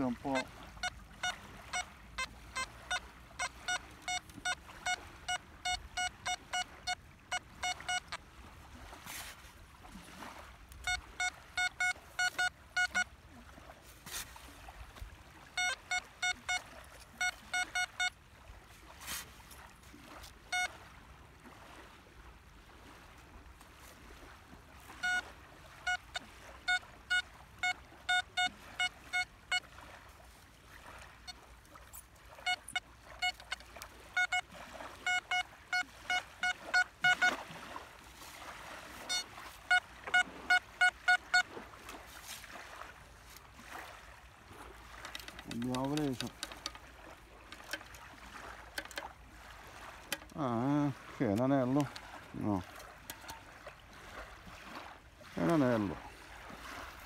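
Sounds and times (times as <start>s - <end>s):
metal detector beeping: 0.0s - 8.2s, 10.7s - 13.2s, 15.5s - 18.2s, 20.2s - 20.8s, 24.9s - 29.7s, 31.2s - 37.5s, 39.0s - 41.6s, 44.5s - 48.1s, 48.7s - 49.1s, 50.0s - 50.7s, 51.3s - 53.4s.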